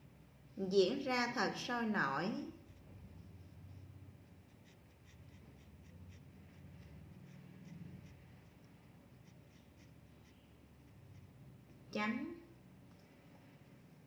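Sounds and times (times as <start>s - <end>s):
pen scratching on paper: 2.6s - 11.4s.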